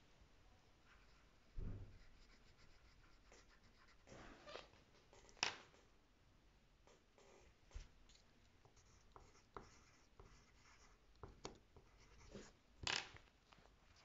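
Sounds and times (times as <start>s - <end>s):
pencil strokes on paper: 0.8s - 4.2s, 7.2s - 12.6s.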